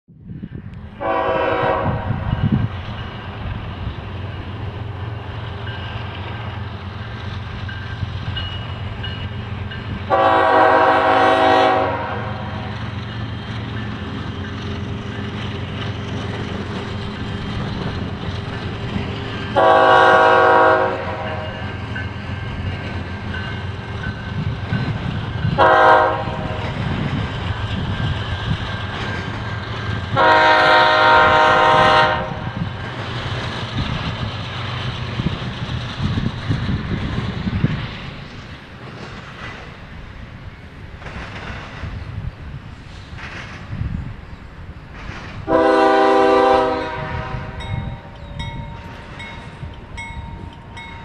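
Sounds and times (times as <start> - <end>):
diesel trains rumbling: 0.1 - 51.0
locomotive air horn blasts: 1.0 - 2.3, 10.1 - 12.7, 19.6 - 21.8, 25.5 - 26.6, 30.1 - 32.6, 45.5 - 48.1.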